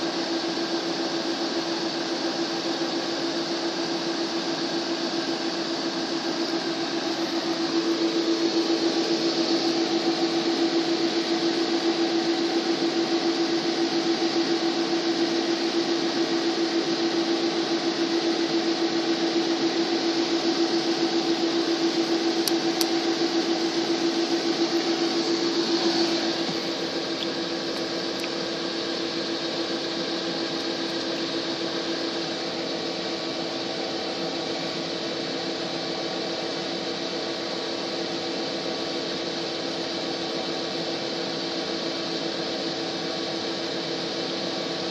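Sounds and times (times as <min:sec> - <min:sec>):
diesel engine idling: 0:05.3 - 0:17.8, 0:18.4 - 0:35.4.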